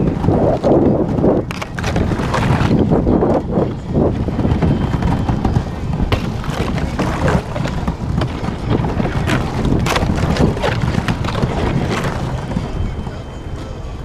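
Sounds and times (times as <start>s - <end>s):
steady low rumble: 0.0s - 14.0s
ice cracking and crunching: 1.4s - 2.9s, 6.1s - 12.5s.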